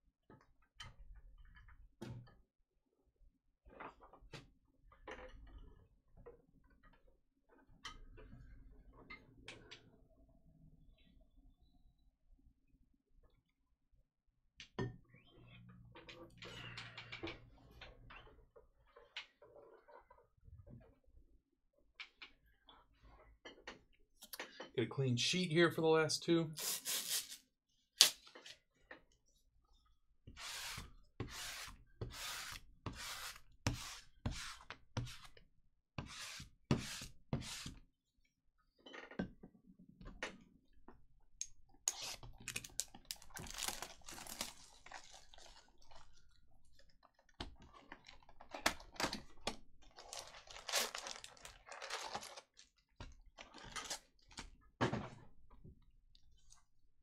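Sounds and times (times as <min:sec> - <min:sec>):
cards rustling: 0:41.9 - 0:45.3, 0:50.0 - 0:52.6
wrappers crinkling: 0:42.4 - 0:46.1, 0:49.8 - 0:52.8.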